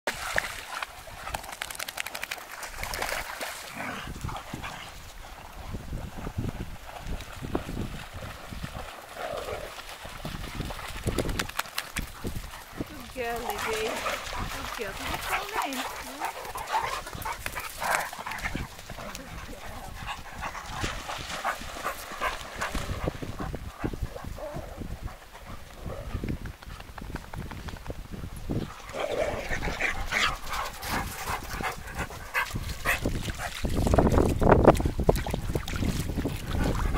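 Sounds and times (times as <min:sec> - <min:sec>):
dogs scuffling on sand: 0:00.1 - 0:26.1, 0:28.6 - 0:34.9
dog vocal noises: 0:12.0 - 0:26.2, 0:28.8 - 0:33.8.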